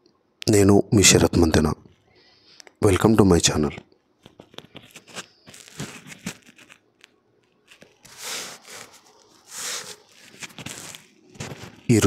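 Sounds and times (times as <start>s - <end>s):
handling noise rustling: 4.2s - 12.0s.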